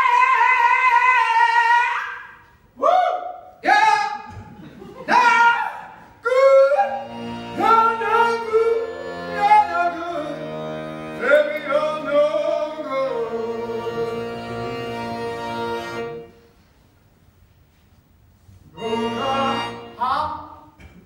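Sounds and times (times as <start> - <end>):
person singing with vibrato: 0.0 - 4.3, 5.1 - 16.4, 18.6 - 20.8
accordion sustained chords: 6.5 - 16.6, 18.7 - 20.6.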